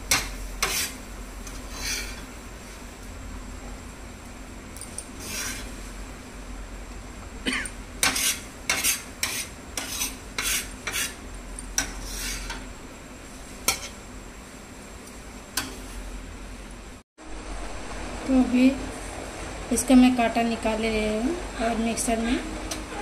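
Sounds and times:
metal spatula scraping on steel: 0.1s - 2.3s, 5.1s - 5.8s, 8.0s - 11.2s, 11.8s - 12.7s, 13.6s - 14.0s, 15.6s - 16.0s.

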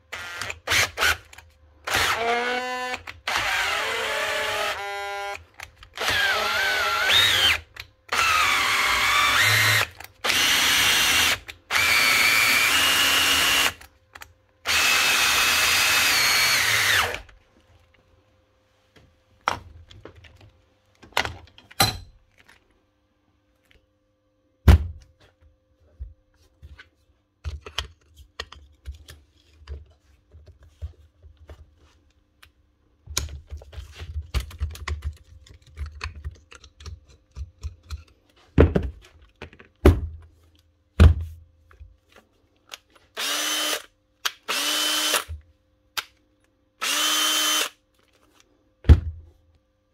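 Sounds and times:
cordless drill motor whining: 1.9s - 5.4s, 6.0s - 13.8s, 14.7s - 17.3s, 43.2s - 43.9s, 44.5s - 45.3s, 46.8s - 47.8s.

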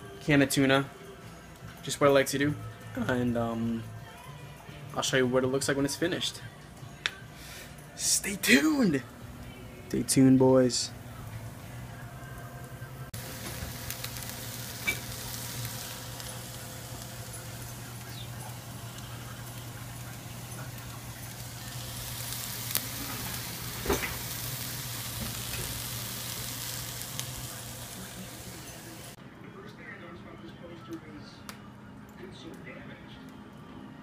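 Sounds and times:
meat and onions sizzling in a skillet: 13.2s - 29.2s.

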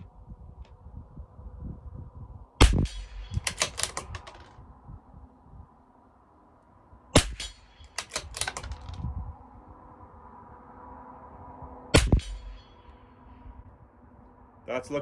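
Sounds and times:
rifle shot: 2.6s - 4.5s, 7.2s - 9.0s, 11.9s - 12.8s
rifle bolt metallic clicks: 2.8s - 4.6s, 7.2s - 9.1s, 12.0s - 12.6s.

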